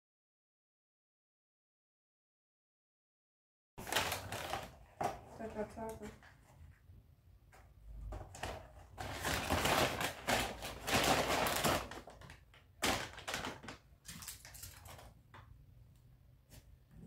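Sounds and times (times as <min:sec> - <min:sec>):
paper bag rustling and crinkling: 0:03.8 - 0:06.2, 0:08.2 - 0:15.2.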